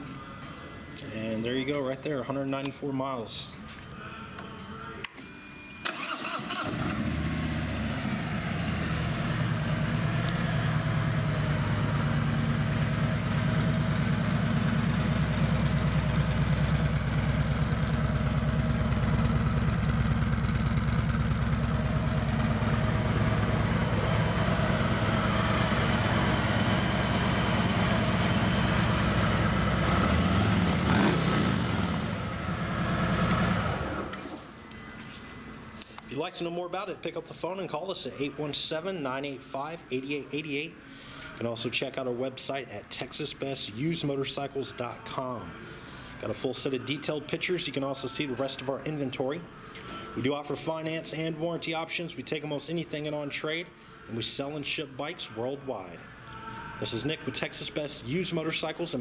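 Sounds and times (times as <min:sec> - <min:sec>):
motorcycle engine idling: 0:07.0 - 0:33.8.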